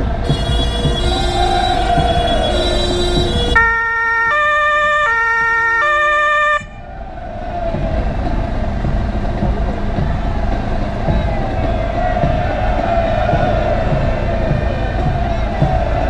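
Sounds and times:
vehicle engine and road rumble: 0.0s - 16.0s
two-tone siren horn: 0.1s - 6.8s.

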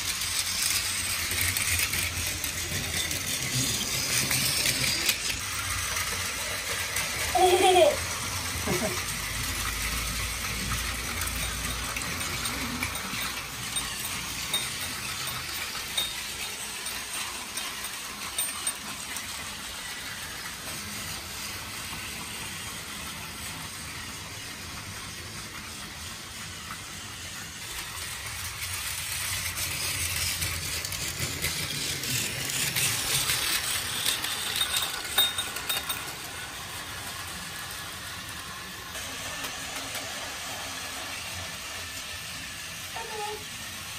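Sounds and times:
toy train motor whirring: 0.0s - 43.9s
toy train wheels clicking on track: 0.0s - 43.9s.

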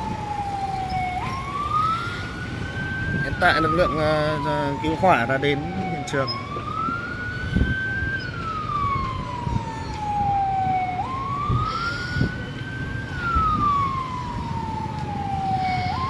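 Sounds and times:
fire engine siren wailing: 0.0s - 16.0s.

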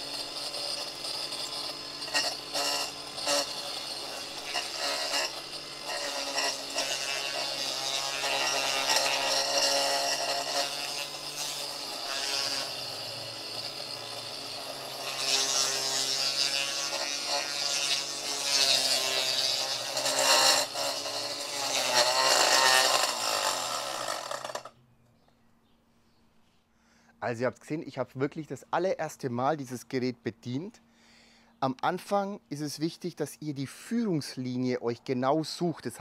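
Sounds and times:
lawn edger running: 0.0s - 24.7s.

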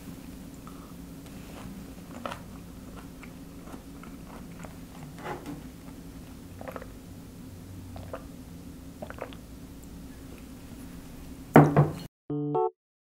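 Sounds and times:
steady low hum: 0.0s - 11.5s
person chewing food: 2.0s - 5.2s, 5.8s - 7.0s, 7.9s - 8.3s, 9.0s - 9.4s.

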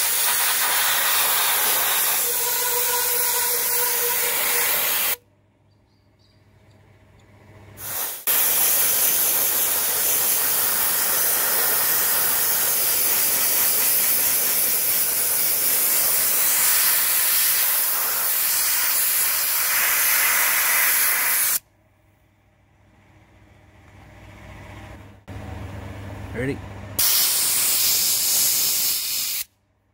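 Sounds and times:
air blaster hissing: 0.0s - 5.2s, 7.8s - 21.6s, 27.0s - 29.5s.

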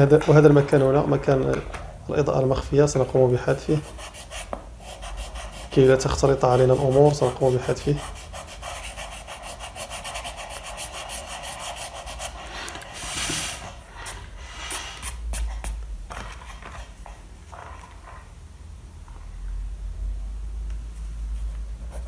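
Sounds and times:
eraser rubbing on paper: 2.9s - 17.2s.

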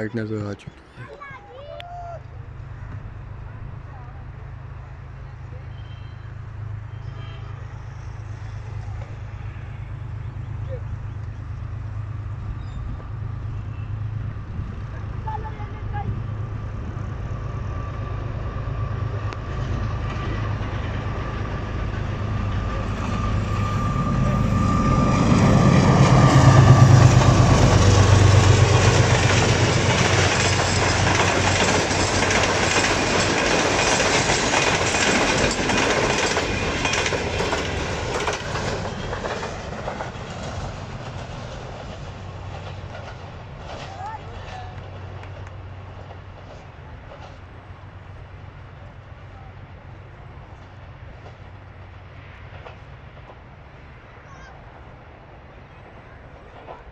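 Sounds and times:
diesel locomotive engine passing: 0.0s - 56.9s
coach wheels clattering on rails: 19.1s - 47.8s, 56.4s - 56.9s.

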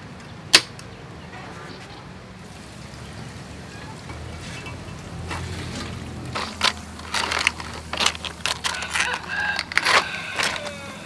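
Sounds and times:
crab shells clicking and scraping: 5.2s - 11.0s.

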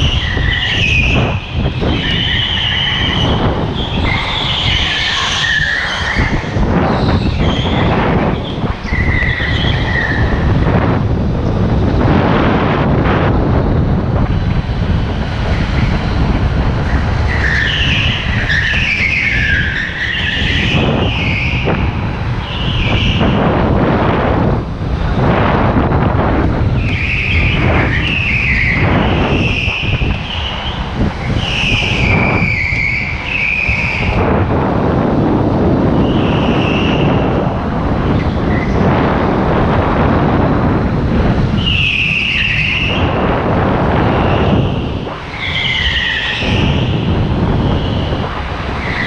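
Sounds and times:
tyres squealing: 0.0s - 10.6s, 15.4s - 23.4s, 26.7s - 34.2s, 41.4s - 49.0s
go-kart motor rumble: 0.0s - 49.0s.

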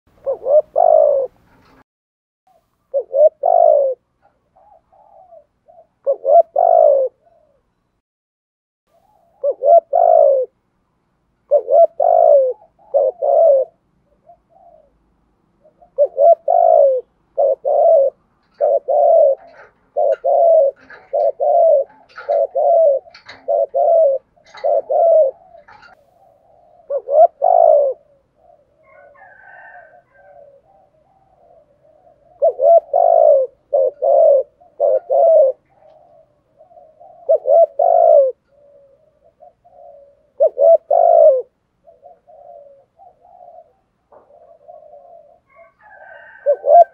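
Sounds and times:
dove cooing: 0.1s - 1.8s, 2.5s - 7.8s, 8.9s - 10.6s, 11.4s - 46.9s
small birds chirping: 15.6s - 29.1s.

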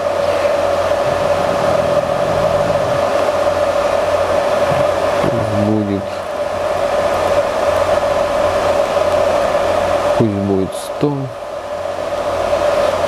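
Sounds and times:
short hum-like voice: 0.0s - 6.3s
welder fan whirring: 0.0s - 13.0s.

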